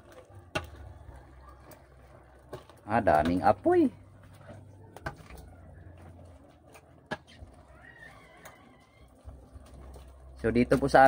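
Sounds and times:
stirring simmering stew: 0.0 - 11.0
faint wavering animal call: 7.6 - 9.2.

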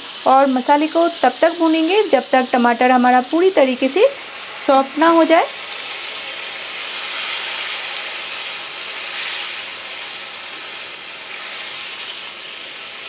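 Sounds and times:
tomatoes sizzling in oil: 0.0 - 13.0
spatula stirring in a pan: 4.2 - 13.0.

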